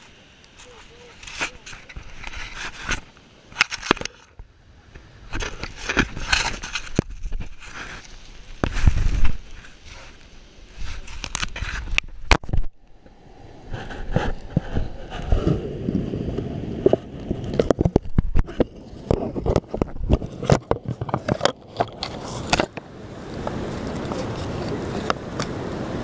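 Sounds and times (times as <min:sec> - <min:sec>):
handling noise on camera: 0:00.0 - 0:12.7, 0:16.8 - 0:22.8
steady rustle: 0:00.0 - 0:12.8, 0:13.5 - 0:16.1.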